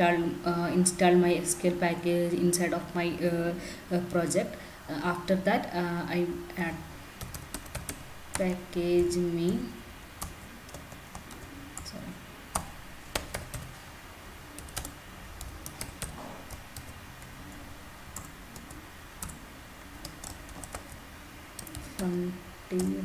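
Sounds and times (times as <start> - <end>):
computer keyboard typing: 7.2 - 9.6, 10.2 - 13.8, 14.6 - 21.0, 21.6 - 22.1.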